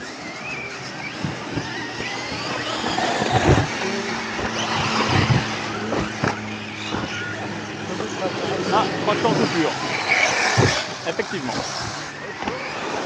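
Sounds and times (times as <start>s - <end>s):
electric motor whine: 0.0s - 13.0s
tyre noise: 0.5s - 13.0s
loud thumps: 10.5s - 10.9s.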